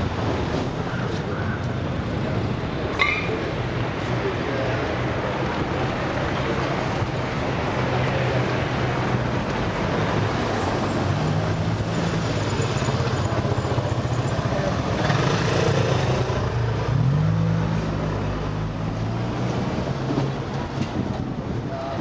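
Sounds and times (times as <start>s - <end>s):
urban noise rush: 0.0s - 22.0s
vehicle engines passing: 0.0s - 22.0s.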